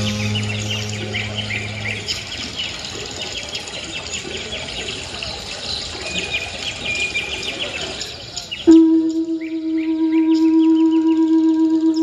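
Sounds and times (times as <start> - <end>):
high whistle-like tone: 8.7 - 12.0.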